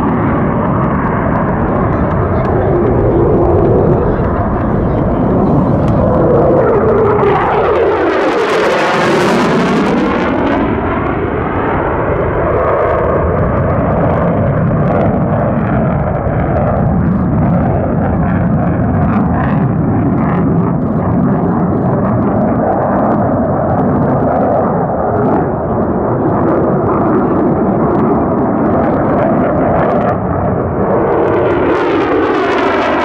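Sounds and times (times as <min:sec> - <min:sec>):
jet engine roar: 0:00.0 - 0:33.0.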